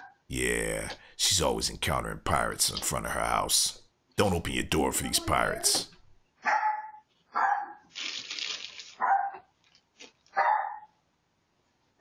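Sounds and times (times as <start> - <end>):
dog barking: 6.4 - 7.8, 9.0 - 9.5, 10.4 - 10.9.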